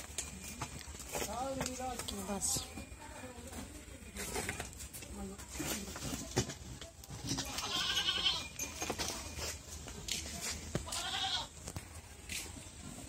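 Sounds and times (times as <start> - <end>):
farm animal bleating: 7.4 - 8.6, 10.8 - 11.6.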